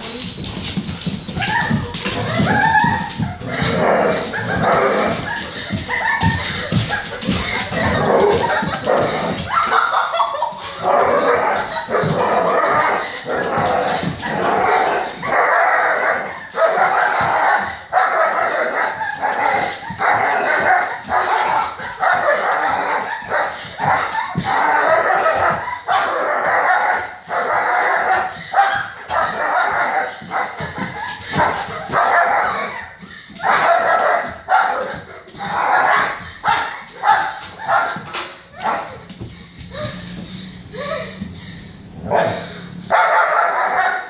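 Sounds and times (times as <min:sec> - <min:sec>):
dog barking: 0:42.1 - 0:44.0.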